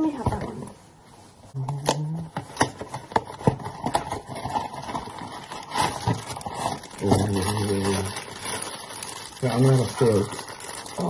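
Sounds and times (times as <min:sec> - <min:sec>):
cardboard boxes being opened: 0:02.5 - 0:08.1.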